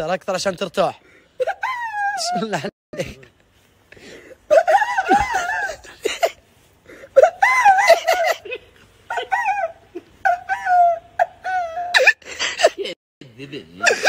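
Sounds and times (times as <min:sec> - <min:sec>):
man wailing and sobbing: 0:01.4 - 0:03.3, 0:04.3 - 0:06.4, 0:07.0 - 0:13.0, 0:13.8 - 0:14.0.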